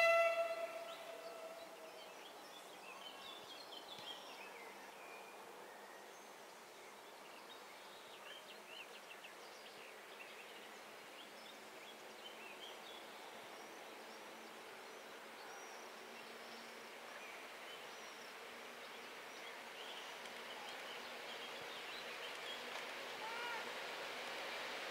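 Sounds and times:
distant train horn: 0.0s - 1.8s.

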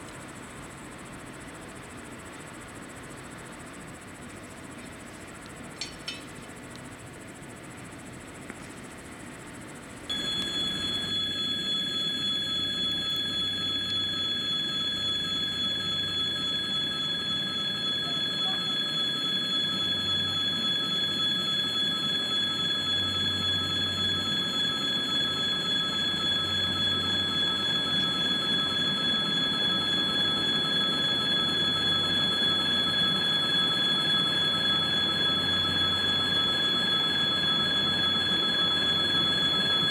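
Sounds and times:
locomotive high-pitched whine: 10.1s - 39.9s.

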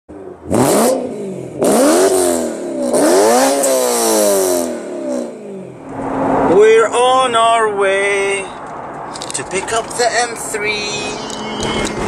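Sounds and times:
car engine revving: 0.1s - 7.0s.

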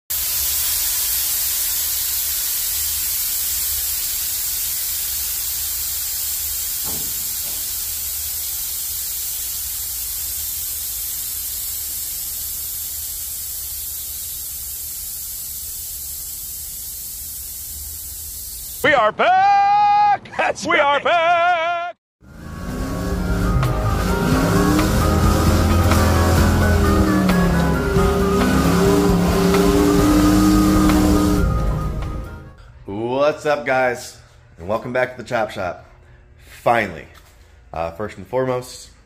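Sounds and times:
high hiss: 0.1s - 18.9s, 22.6s - 31.8s
low rumble: 22.2s - 32.4s.

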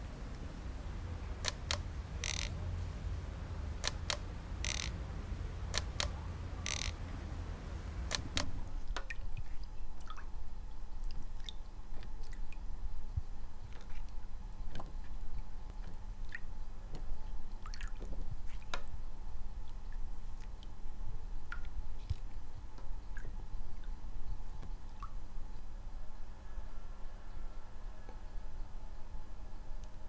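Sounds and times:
low outdoor rumble: 0.0s - 30.0s
film winding rasps: 1.4s - 2.6s, 3.8s - 5.0s, 5.7s - 7.0s
toy camera shutter clicking: 3.8s - 4.9s, 6.7s - 7.0s
liquid sloshing and dripping: 8.8s - 12.7s, 13.6s - 19.0s.

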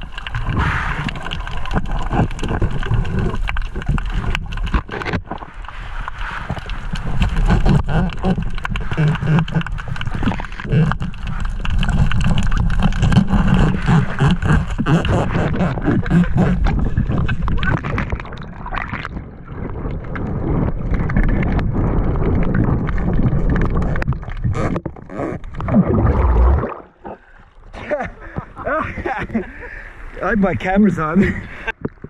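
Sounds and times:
small clicks and pops: 0.0s - 19.2s, 19.8s - 25.7s
water sloshing and gurgling: 0.0s - 32.0s.

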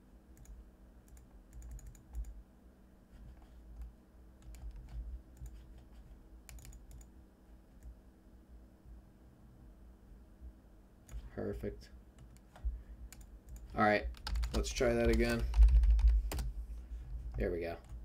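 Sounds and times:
faint low hum: 0.0s - 18.0s
computer keyboard clicks: 0.4s - 2.4s, 3.8s - 5.6s, 6.5s - 7.1s, 12.2s - 16.5s.

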